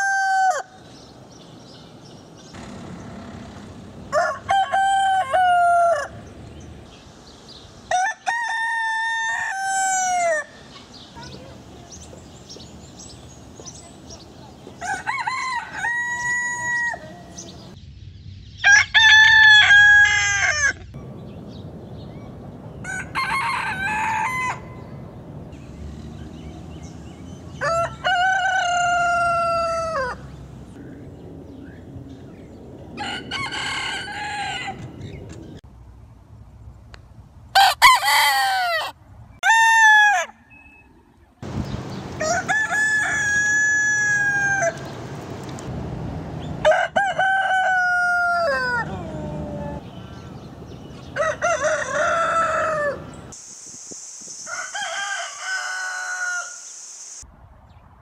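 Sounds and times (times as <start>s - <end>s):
rooster crowing: 0.0s - 0.8s, 4.1s - 6.2s, 7.9s - 10.6s, 14.8s - 17.5s, 18.6s - 20.8s, 22.8s - 24.9s, 27.6s - 30.3s, 33.0s - 34.9s, 37.6s - 40.4s, 42.2s - 44.8s, 46.6s - 49.8s, 51.1s - 53.2s, 54.5s - 56.7s.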